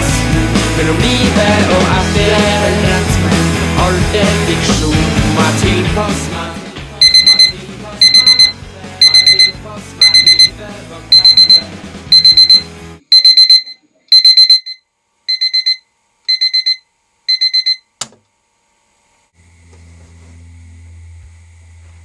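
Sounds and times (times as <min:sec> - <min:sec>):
music: 0:00.0 - 0:13.0
alarm clock high beeps: 0:07.0 - 0:10.5, 0:11.1 - 0:17.8.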